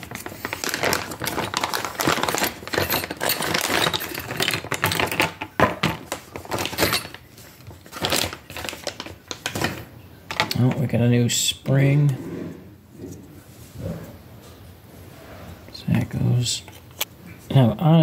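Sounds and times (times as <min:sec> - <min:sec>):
plastic bags crinkling: 0:00.0 - 0:10.8
metal parts clinking: 0:00.8 - 0:07.3.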